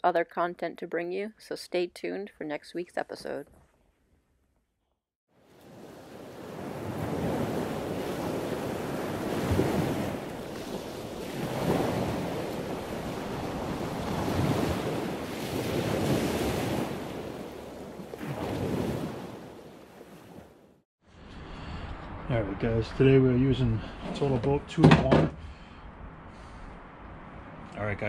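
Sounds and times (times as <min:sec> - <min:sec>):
ocean surf washing in: 0:05.4 - 0:24.3.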